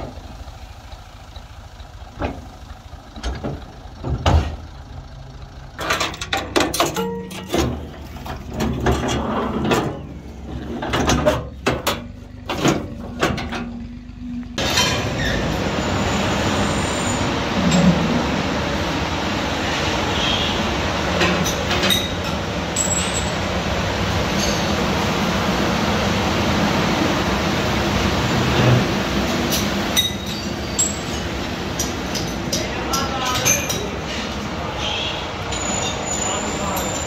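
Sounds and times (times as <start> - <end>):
low engine hum: 0.0 - 37.0
steel pins clinking: 5.8 - 10.0, 29.5 - 34.1.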